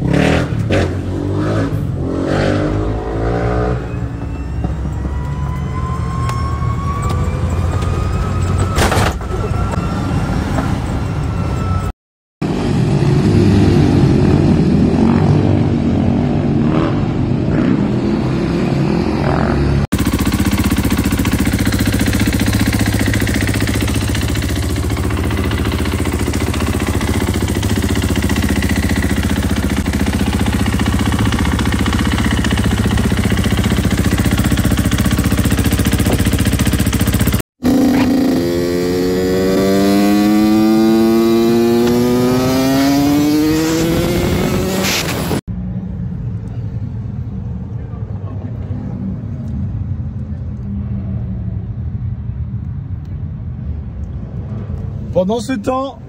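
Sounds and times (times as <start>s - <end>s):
car engine accelerating: 19.1s - 45.5s
dirt bike engine idling: 20.0s - 38.4s.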